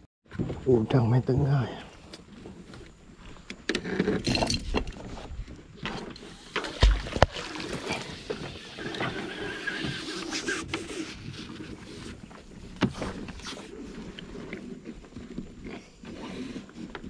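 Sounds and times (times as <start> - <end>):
loud thump: 6.8 - 7.3.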